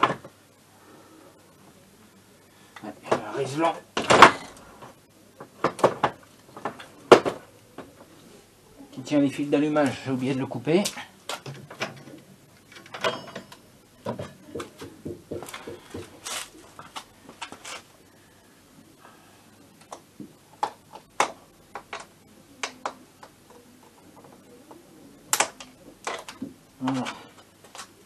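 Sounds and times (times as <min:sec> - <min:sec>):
tools clicking and knocking: 0:11.4 - 0:16.1
rustling of hands: 0:14.6 - 0:18.2.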